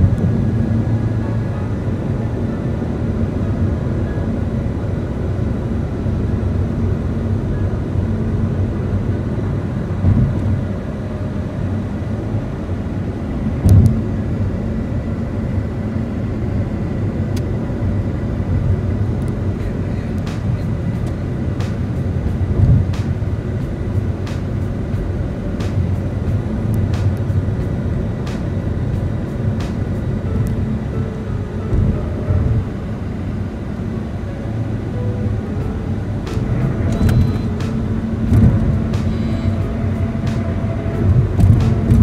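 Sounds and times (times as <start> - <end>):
tyre and engine rumble: 0.0 - 42.0
low thumps: 10.0 - 10.6, 35.6 - 42.0.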